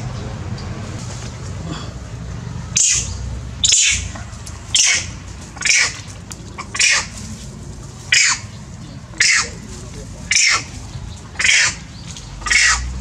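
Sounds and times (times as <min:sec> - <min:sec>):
monkey screaming: 0:02.8 - 0:07.2, 0:08.1 - 0:08.6, 0:09.2 - 0:09.6, 0:10.2 - 0:13.0.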